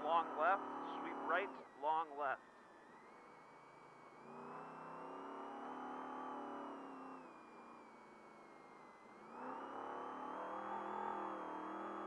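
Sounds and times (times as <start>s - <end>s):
truck engine revving: 0.0s - 1.7s, 4.2s - 7.3s, 9.2s - 12.0s.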